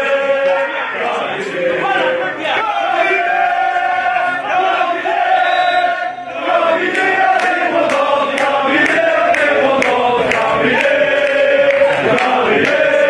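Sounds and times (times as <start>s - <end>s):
supporters chanting in unison: 0.0s - 13.0s
sharp rhythmic beats: 6.4s - 13.0s.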